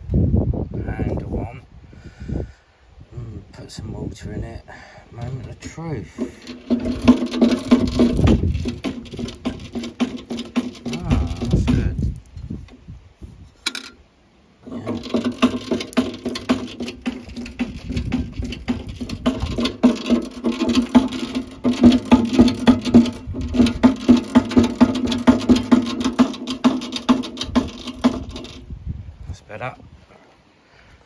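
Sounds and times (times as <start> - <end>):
water squirting and pattering: 6.1 - 12.1, 14.6 - 28.6.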